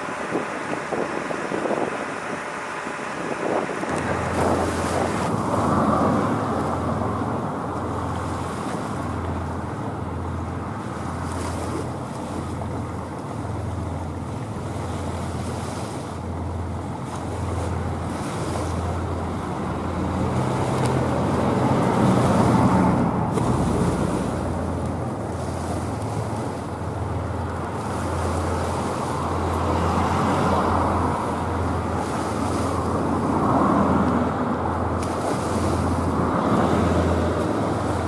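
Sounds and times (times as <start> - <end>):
wind noise on microphone: 0.0 - 9.2
low engine hum: 0.0 - 38.0
water washing: 3.9 - 38.0.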